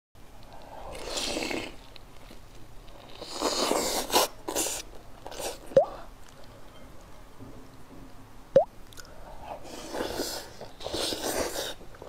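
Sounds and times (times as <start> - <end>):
crunching and chewing meat: 0.3 - 6.6.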